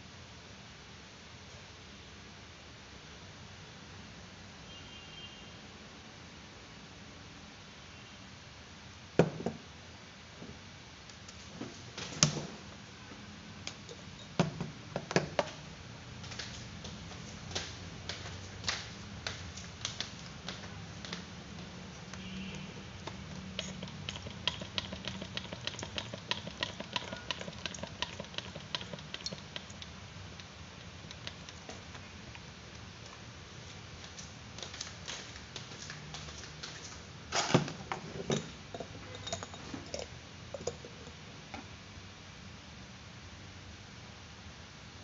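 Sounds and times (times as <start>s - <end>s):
low steady hum: 9.1s - 34.9s, 35.5s - 45.0s.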